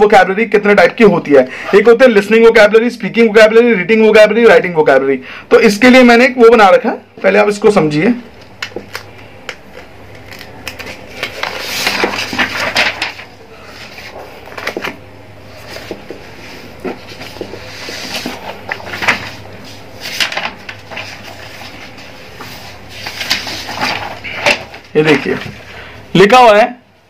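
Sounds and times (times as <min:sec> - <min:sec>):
paper pages rustling: 0:08.4 - 0:25.7.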